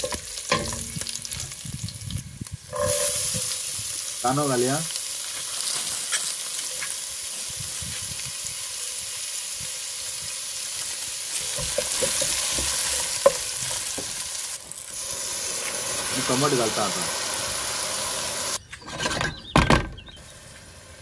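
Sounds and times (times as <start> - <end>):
onions sizzling in hot oil: 0.0 - 18.6, 20.2 - 21.0
spatula scraping a pot: 2.7 - 3.5.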